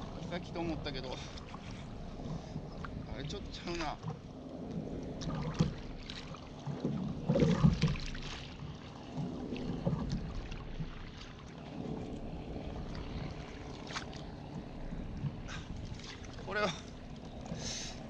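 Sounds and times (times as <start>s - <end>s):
water noise: 0.0s - 18.0s
wind: 0.0s - 18.0s
knocks against kayak hull: 6.8s - 8.2s.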